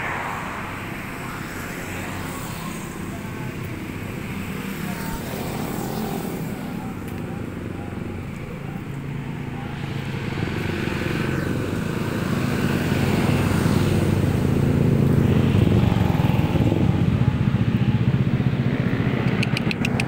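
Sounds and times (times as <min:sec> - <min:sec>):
vehicle engine running: 0:01.8 - 0:20.0.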